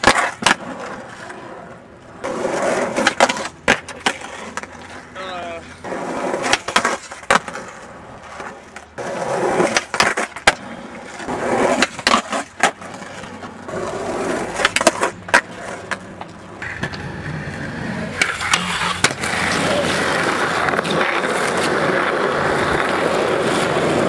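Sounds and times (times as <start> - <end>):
skateboard cracks and slaps: 0.0 - 5.1, 5.8 - 24.0
skateboard wheels rolling on concrete: 0.0 - 24.0.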